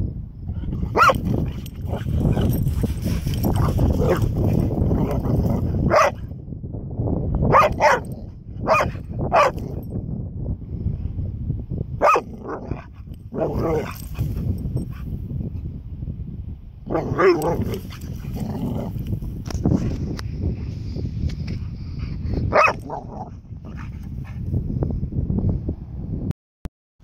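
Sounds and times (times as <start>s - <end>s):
dog barking and yipping: 0.8s - 6.2s, 7.5s - 9.8s, 12.0s - 15.0s, 16.9s - 18.9s, 22.5s - 24.4s.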